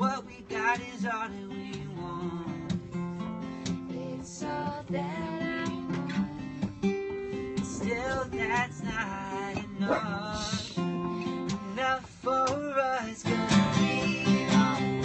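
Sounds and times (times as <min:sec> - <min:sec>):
acoustic guitars strummed and picked: 0:00.0 - 0:15.0
person singing: 0:03.7 - 0:15.0.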